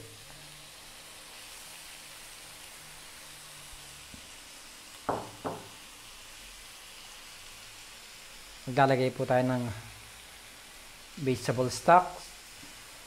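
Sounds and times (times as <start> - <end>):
food sizzling in a wok: 0.0 - 13.0.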